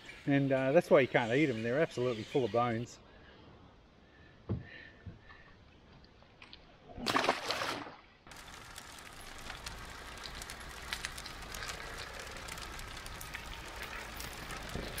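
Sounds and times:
short splash: 0:07.0 - 0:08.0
fire crackling: 0:08.3 - 0:15.0.

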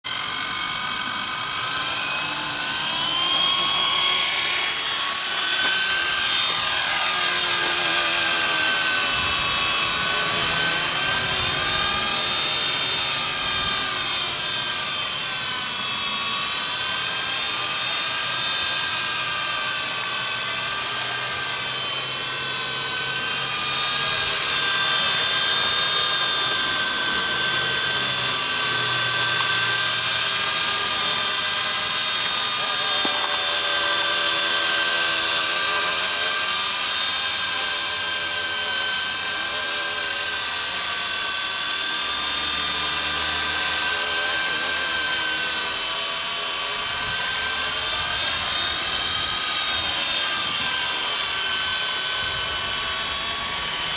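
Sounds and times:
electric toy helicopter whining: 0:00.0 - 0:53.9.

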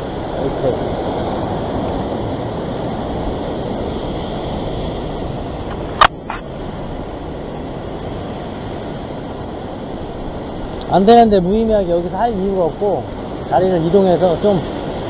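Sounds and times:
sharp click: 0:05.7 - 0:06.4.

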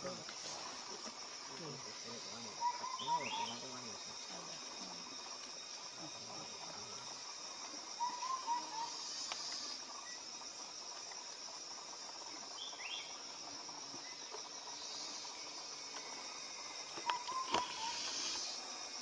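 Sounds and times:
insects buzzing: 0:00.0 - 0:19.0
wavering chirps: 0:02.6 - 0:03.7, 0:08.0 - 0:09.8, 0:17.0 - 0:18.6.

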